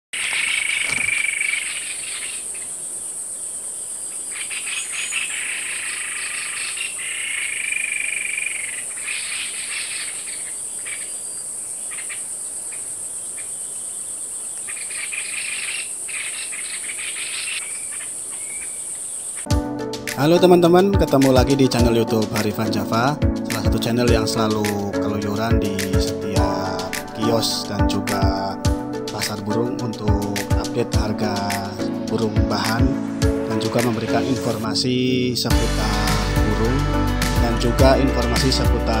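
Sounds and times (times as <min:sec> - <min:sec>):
bird rattling trills: 0:14.6 - 0:19.5.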